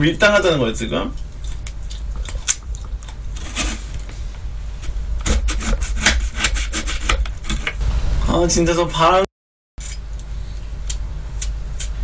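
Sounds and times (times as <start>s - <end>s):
low steady hum: 0.0s - 12.0s
knife peeling fruit: 1.2s - 7.8s, 9.8s - 12.0s.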